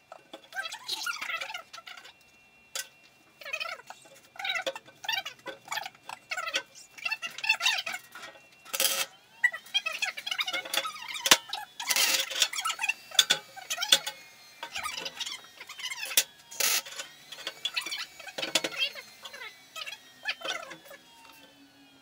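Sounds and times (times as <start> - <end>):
welding arc crackle: 9.7 - 21.0.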